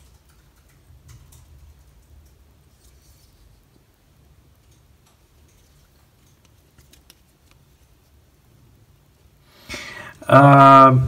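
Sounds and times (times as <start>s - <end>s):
rustle: 0.0s - 8.4s.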